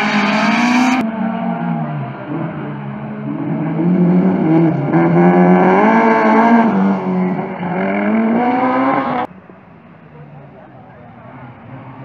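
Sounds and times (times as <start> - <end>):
rally car engine revving: 0.0 - 9.3.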